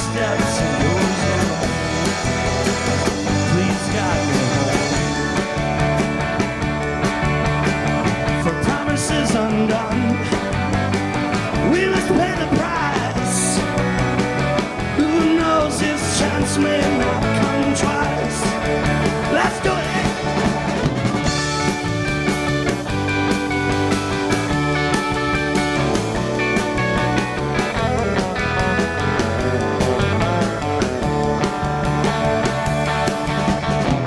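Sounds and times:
man singing: 0.0s - 5.2s, 8.2s - 10.7s, 11.5s - 13.9s, 14.8s - 20.5s
bass: 0.0s - 34.0s
drums: 0.0s - 34.0s
electric guitar: 0.0s - 34.0s.

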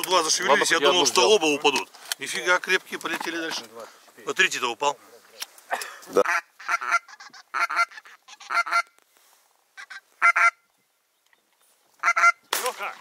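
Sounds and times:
geese honking: 6.2s - 9.0s, 9.8s - 10.7s, 12.0s - 12.5s.

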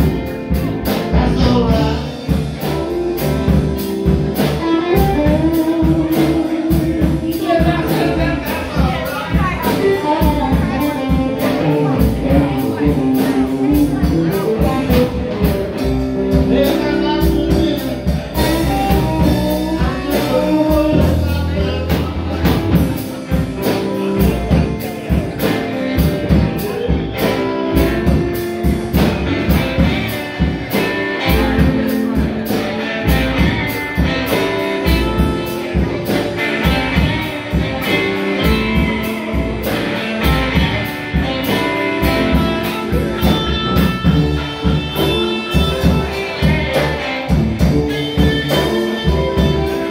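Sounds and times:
bass guitar: 0.0s - 49.9s
drum kit beat: 0.0s - 49.9s
electric guitars: 0.0s - 49.9s
person singing: 0.2s - 3.6s, 4.4s - 28.3s.

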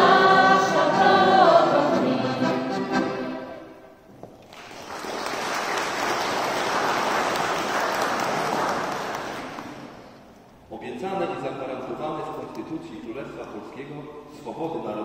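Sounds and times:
person singing: 0.0s - 3.2s
audience applause: 4.4s - 10.1s.

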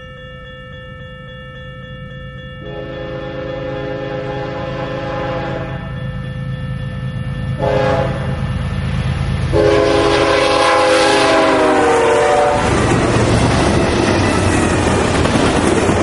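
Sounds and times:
train air horn blasts: 2.6s - 5.9s, 7.6s - 8.4s, 9.5s - 12.8s
train cars clattering past: 2.6s - 16.0s
diesel engines rumbling: 7.6s - 16.0s.

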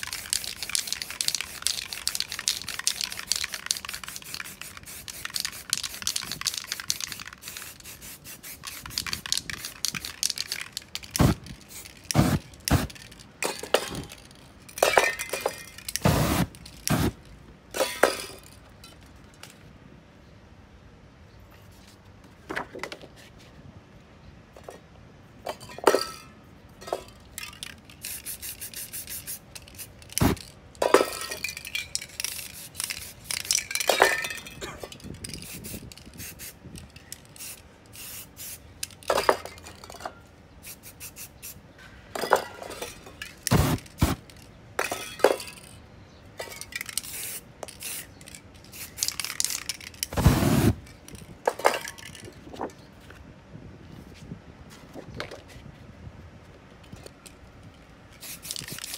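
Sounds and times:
spray can hissing: 0.0s - 13.0s, 16.0s - 17.2s, 28.0s - 30.4s, 32.2s - 33.4s, 35.3s - 36.6s, 37.4s - 38.6s, 40.6s - 41.6s, 43.5s - 44.2s, 47.0s - 48.1s, 48.7s - 49.5s, 50.1s - 50.8s, 58.2s - 58.9s
metal cans clinking: 12.2s - 16.4s, 30.1s - 35.1s
rush of flame: 50.1s - 50.8s.

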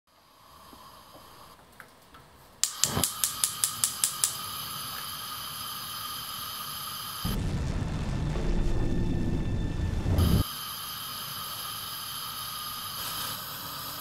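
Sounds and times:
gas flame hissing: 0.1s - 1.6s, 2.6s - 7.5s, 9.8s - 14.0s
gas catching with whoosh: 2.6s - 4.4s
stove igniter clicking: 2.6s - 5.1s.

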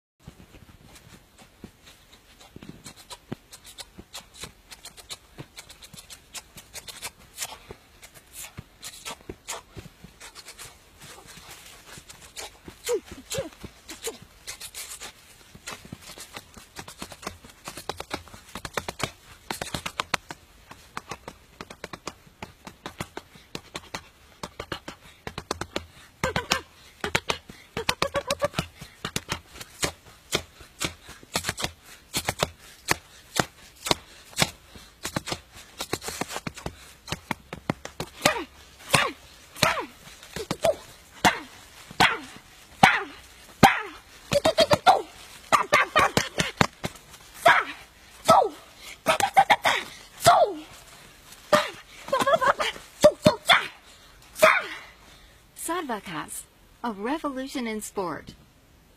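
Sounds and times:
fists hitting tree trunk: 15.6s - 47.6s.

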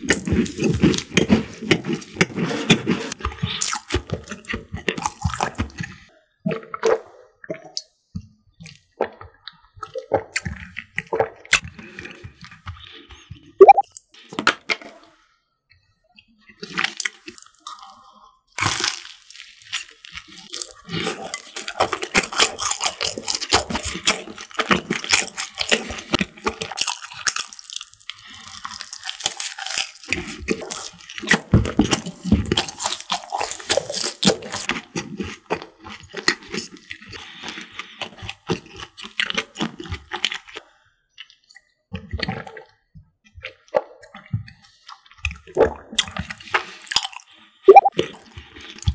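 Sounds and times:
crunchy bite: 0.0s - 6.0s, 18.6s - 36.7s, 45.9s - 47.2s
crunchy wet chewing: 0.0s - 14.3s, 16.5s - 48.9s.

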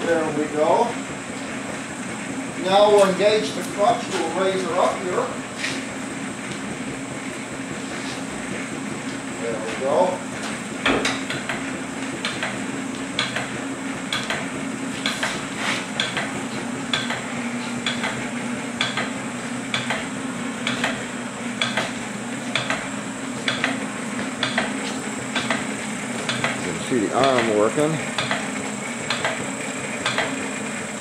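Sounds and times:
drive humming: 20.2s - 29.6s.

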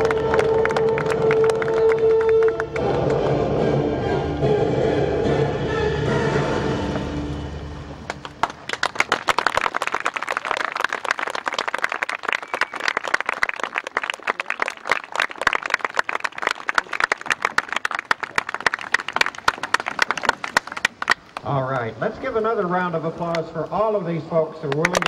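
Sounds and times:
audience clapping: 0.0s - 3.4s, 8.0s - 21.9s, 24.6s - 25.0s.

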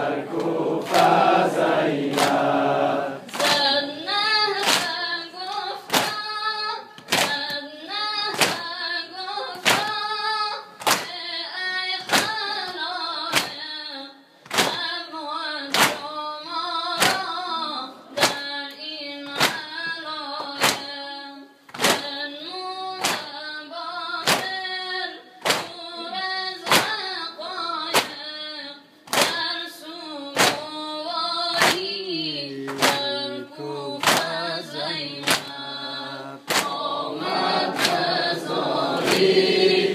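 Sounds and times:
men chanting together: 0.0s - 3.8s, 32.3s - 39.9s
palms slapping on chests: 0.0s - 3.8s, 4.6s - 6.3s, 8.3s - 8.7s, 9.6s - 10.0s, 10.8s - 11.2s, 12.0s - 12.4s, 14.5s - 14.9s, 17.0s - 17.3s, 20.4s - 20.9s, 21.7s - 22.2s, 23.0s - 23.3s, 24.2s - 24.6s, 25.4s - 25.8s, 26.6s - 27.0s, 29.1s - 29.5s, 30.4s - 30.7s, 31.5s - 32.0s, 32.7s - 33.2s, 34.0s - 34.4s, 35.2s - 35.7s, 36.4s - 39.8s.

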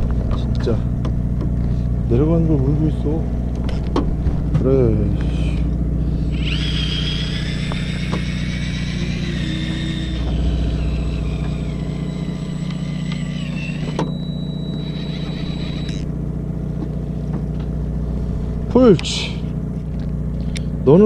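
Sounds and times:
high sliding whine: 0.0s - 19.9s
boat engine humming: 0.0s - 21.0s
steady high tone: 5.3s - 16.3s.

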